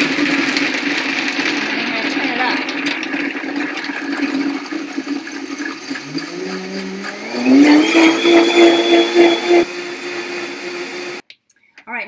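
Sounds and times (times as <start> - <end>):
blender motor whining: 3.8 - 11.2.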